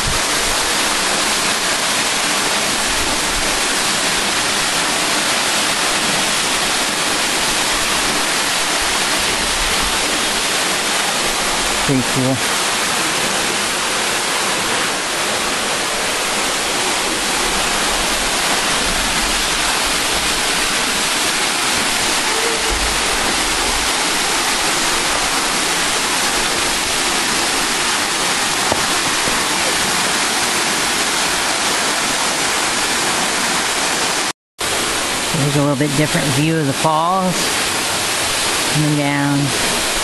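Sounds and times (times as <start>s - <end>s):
waterfall rushing: 0.0s - 40.0s.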